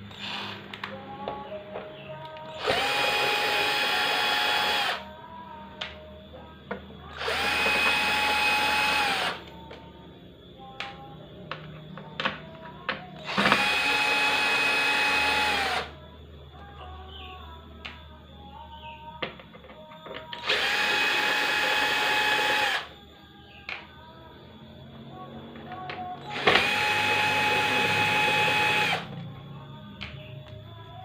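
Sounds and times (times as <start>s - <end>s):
cordless drill motor whining: 0.2s - 0.5s, 2.6s - 5.0s, 7.2s - 9.5s, 13.2s - 15.9s, 20.4s - 22.9s, 26.3s - 29.1s.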